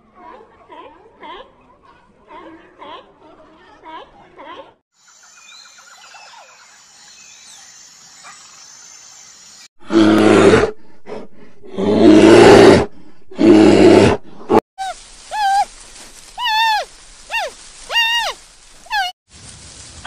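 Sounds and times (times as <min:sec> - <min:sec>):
bear roaring: 0:09.8 - 0:14.6.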